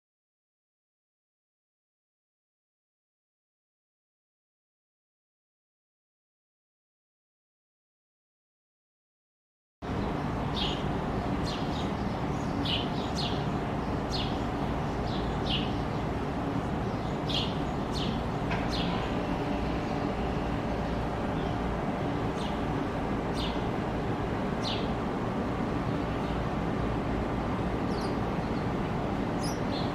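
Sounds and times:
sparrows chirping: 9.9 - 29.9.

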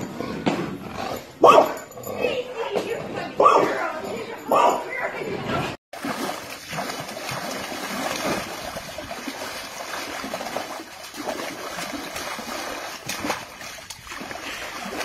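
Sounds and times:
dog splashing in water: 6.0 - 15.0.

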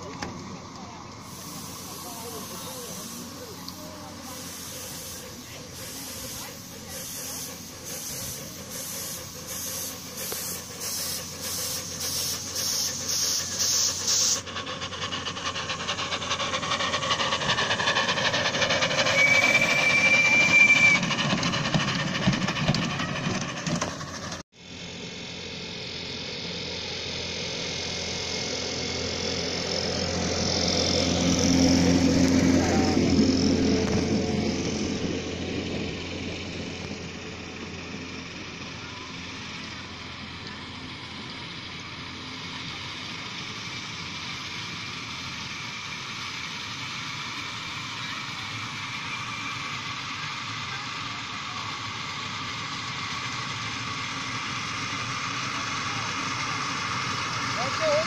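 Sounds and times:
cars rolling on small track: 0.0 - 58.0
steam locomotive chuffing: 0.0 - 58.0
steam hiss: 1.1 - 23.1, 37.1 - 58.0
steam whistle blast: 19.0 - 21.2.

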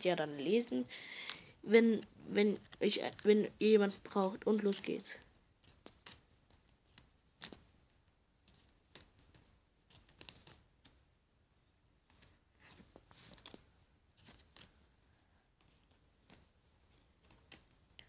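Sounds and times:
cardboard cards clicking and rustling: 1.2 - 7.7, 8.5 - 11.0, 12.1 - 14.8.

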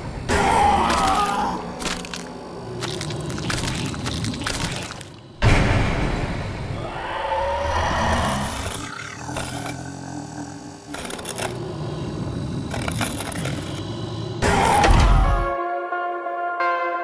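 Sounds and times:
creature growls and cries: 0.2 - 5.0, 6.8 - 15.5
sharp crackles and hits: 0.9 - 6.7
loud jump-scare hit: 5.4 - 6.8.

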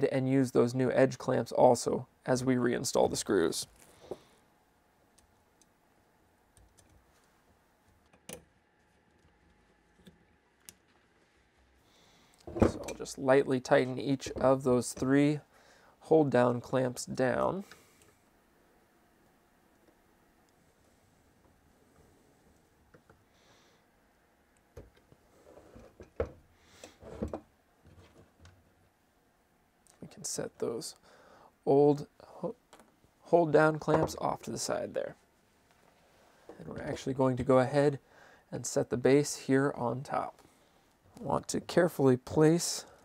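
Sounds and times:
faint clicks of small metal parts: 6.5 - 8.5.

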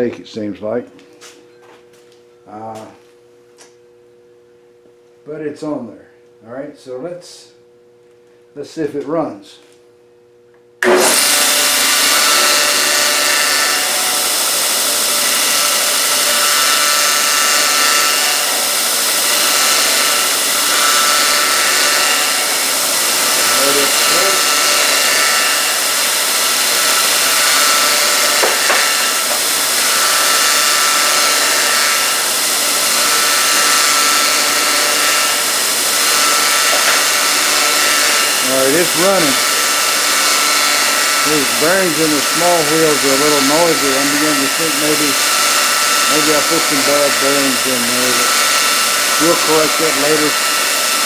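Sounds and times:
belt grinder whirring: 10.8 - 51.0
idler wheels whining: 41.2 - 45.2.

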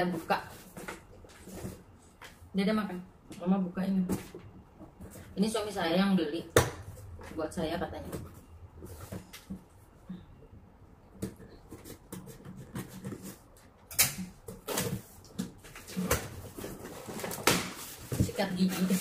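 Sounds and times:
cardboard crackling and rustling: 14.6 - 19.0.

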